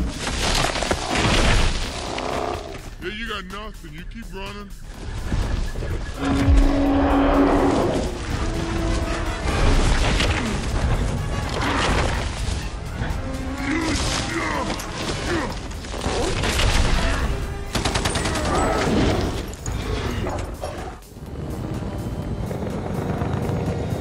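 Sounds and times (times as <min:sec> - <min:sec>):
action film music: 0:00.0 - 0:24.0
heavy low rumble: 0:21.0 - 0:24.0.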